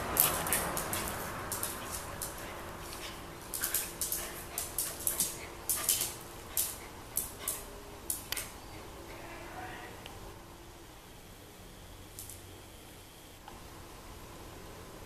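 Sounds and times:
dog claws clicking on tile: 0.0s - 8.8s.

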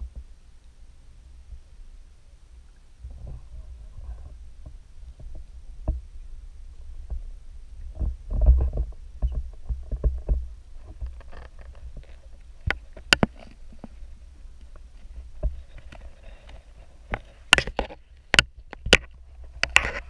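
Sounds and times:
camera housing knocking and scraping: 8.3s - 13.9s, 17.1s - 20.0s.

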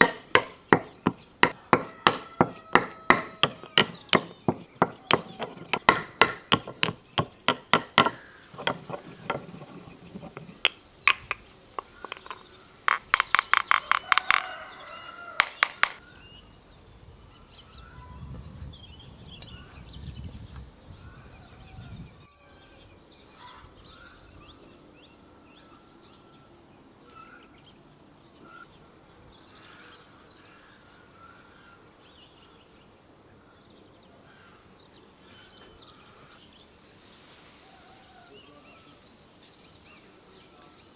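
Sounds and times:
pestle pounding in mortar: 0.0s - 14.6s, 15.4s - 16.0s
birds chirping faintly: 0.0s - 40.9s.

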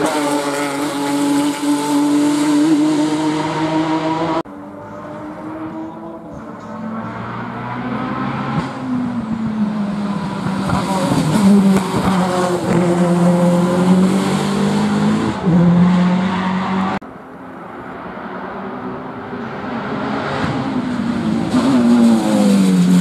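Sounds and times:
race car accelerating: 0.0s - 17.0s, 17.9s - 23.0s
distant engine: 0.0s - 23.0s.

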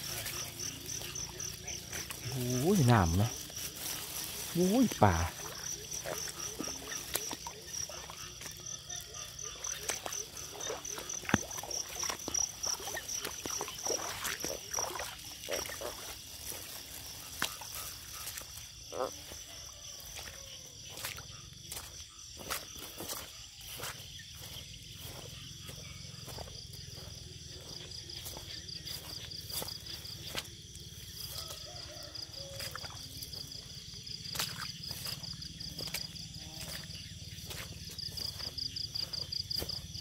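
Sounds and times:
high fast-pulsing insect trill: 0.0s - 11.1s.

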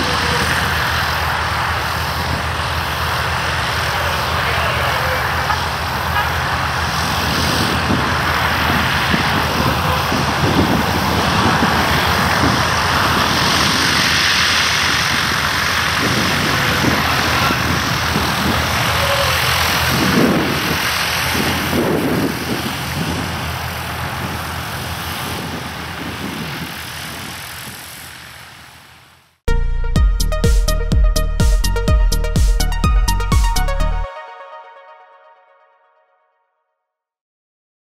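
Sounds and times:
propeller plane engine droning: 0.0s - 29.4s.

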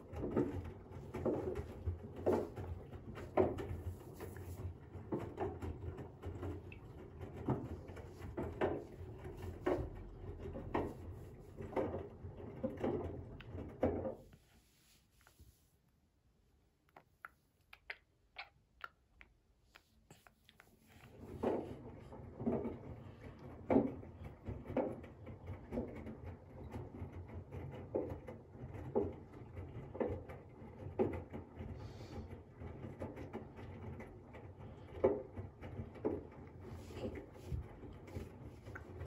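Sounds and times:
washing machine drum humming: 0.0s - 14.3s.

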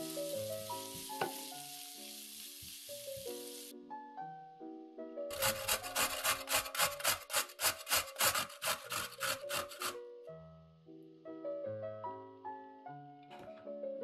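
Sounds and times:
piano music: 0.0s - 14.0s
carrot grating on metal grater: 5.3s - 10.0s.

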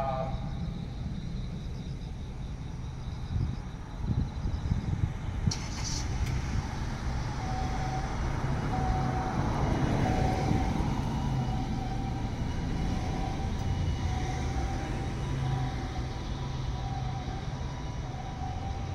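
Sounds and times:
two-tone ambulance siren: 0.0s - 1.3s, 4.8s - 18.9s
steady road traffic: 0.0s - 18.9s
vehicle passing loudly: 5.8s - 18.9s.

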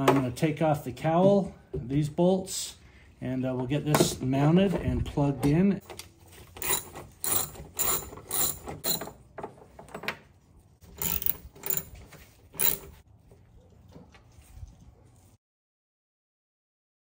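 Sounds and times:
socket ratchet clicking: 6.6s - 9.1s, 11.0s - 12.0s, 12.6s - 12.8s.

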